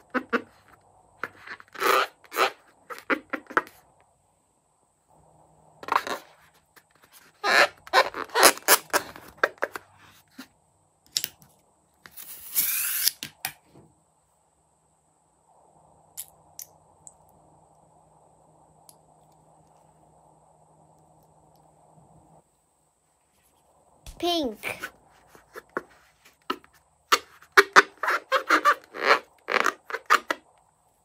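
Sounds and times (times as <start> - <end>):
rubber balloon squeaking: 0.0 - 3.8, 7.1 - 9.8, 27.1 - 30.4.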